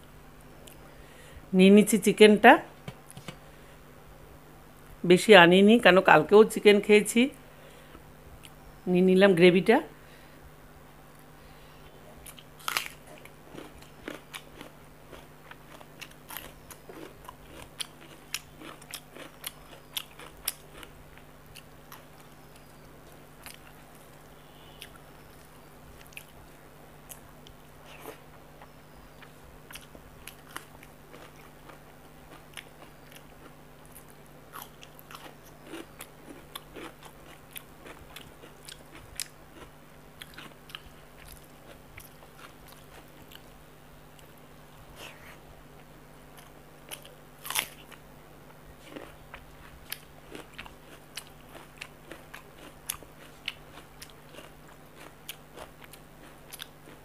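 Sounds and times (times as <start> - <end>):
faint steady hum: 0.0 - 57.0
wet chewing and lip smacks: 48.8 - 57.0.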